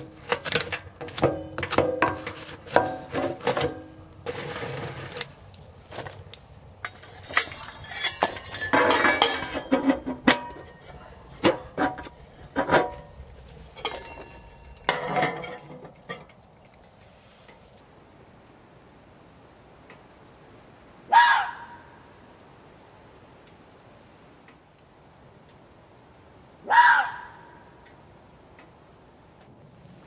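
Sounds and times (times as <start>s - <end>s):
wood knocking against metal stove: 0.0s - 4.6s, 6.8s - 13.1s
stove door scraping shut: 2.0s - 5.4s.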